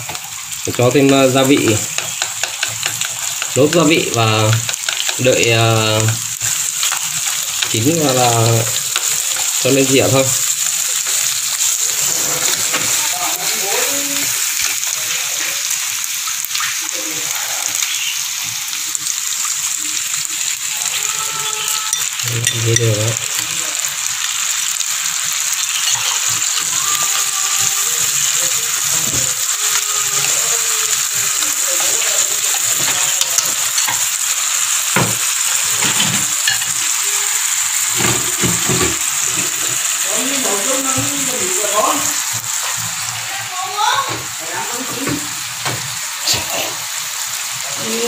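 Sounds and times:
meat sizzling in a frying pan: 0.0s - 48.0s.

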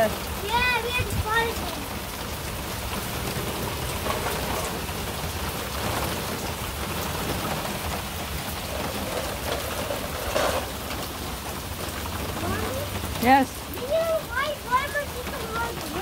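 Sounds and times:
heavy rain on paving: 0.0s - 16.0s.

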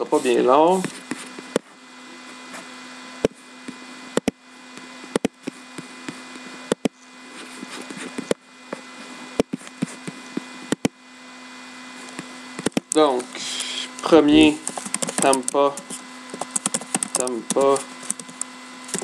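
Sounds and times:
steady low hum: 0.0s - 19.0s
laptop keys clicking: 12.6s - 13.3s, 14.6s - 19.0s.

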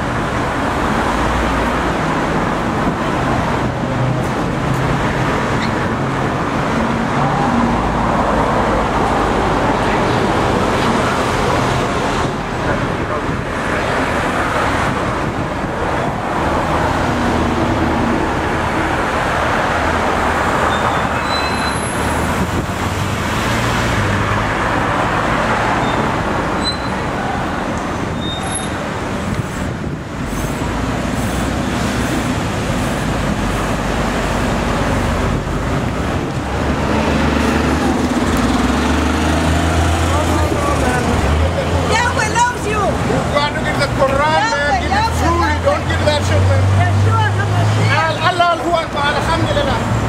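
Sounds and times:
traffic road noise: 0.0s - 50.0s
brief high squeaks: 20.7s - 22.0s, 25.8s - 27.0s, 28.2s - 28.8s.

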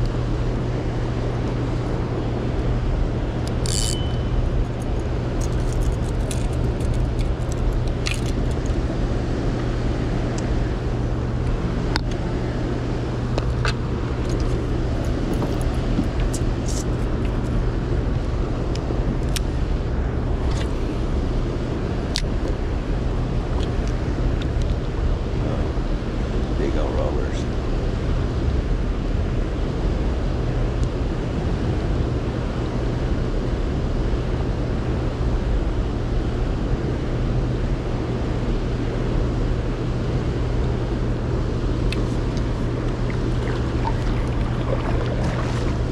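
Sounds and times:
constant low hum: 0.0s - 45.9s
water rushing below a dam: 41.9s - 45.9s.

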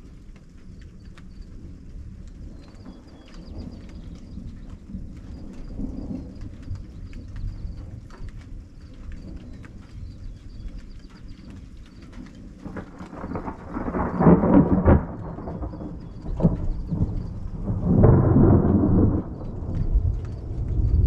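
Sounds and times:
faint scattered ticks: 0.0s - 21.0s
thunder rumbling: 1.0s - 8.6s, 12.5s - 21.0s.

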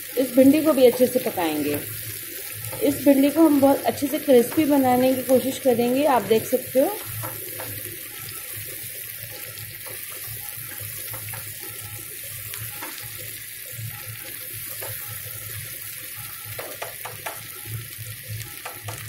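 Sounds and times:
vegetables sizzling in hot oil: 0.0s - 19.0s
spatula scraping and tapping: 7.0s - 7.9s, 9.8s - 11.6s, 16.6s - 17.5s.

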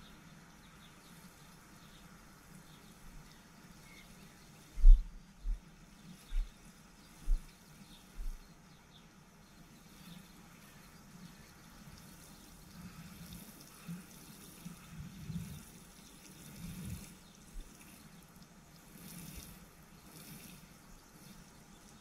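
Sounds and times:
water pouring onto soil: 9.8s - 22.0s.

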